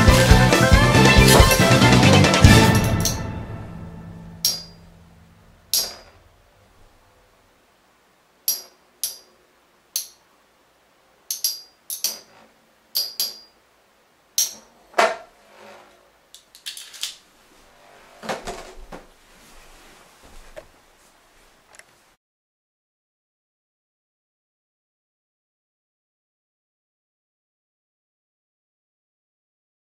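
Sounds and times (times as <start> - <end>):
spinning tops clicking together: 11.3 - 13.5.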